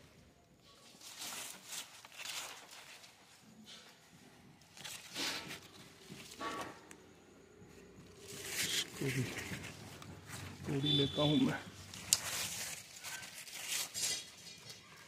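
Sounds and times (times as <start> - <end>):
leaves rustling: 0.0 - 3.5, 7.7 - 15.0.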